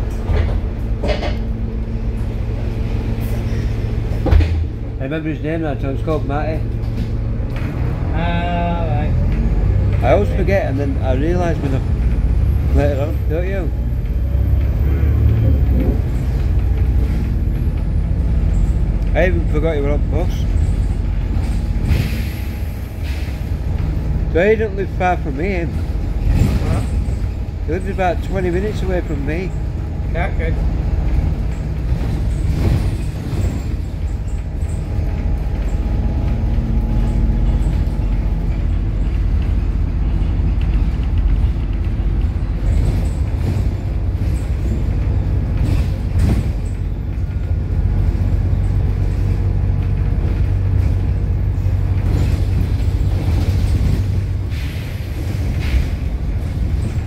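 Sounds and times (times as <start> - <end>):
bus engine running: 0.0 - 57.0
road rumble: 0.0 - 57.0
knocks and rattles: 23.6 - 54.5.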